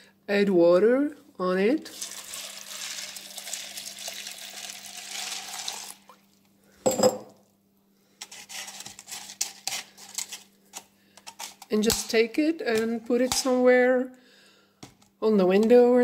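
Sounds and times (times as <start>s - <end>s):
hand stirring wet seeds: 1.9s - 6.2s
water pouring onto seeds: 1.9s - 6.2s
glass jar clinking on counter: 6.8s - 7.3s.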